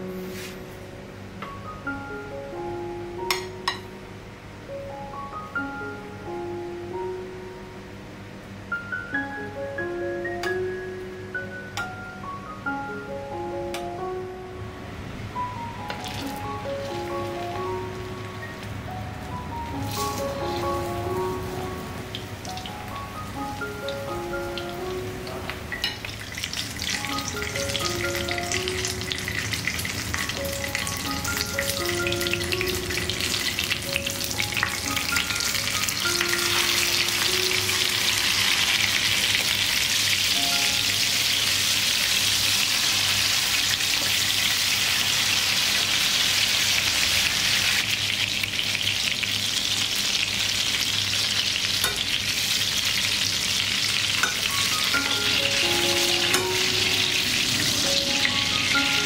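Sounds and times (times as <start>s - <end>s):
eggplant sizzling in hot oil: 19.8s - 21.5s, 25.9s - 59.0s.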